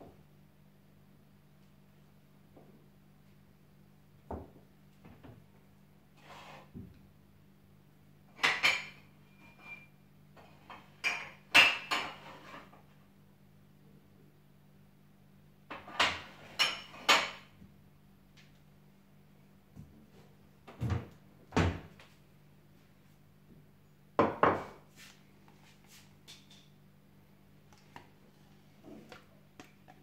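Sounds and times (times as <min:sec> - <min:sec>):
kitchen knocks and clunks: 0:04.2 - 0:05.5, 0:08.4 - 0:09.1, 0:10.8 - 0:12.7, 0:15.7 - 0:17.7, 0:20.6 - 0:22.0, 0:24.2 - 0:24.8
faint low hum: 0:12.6 - 0:15.9.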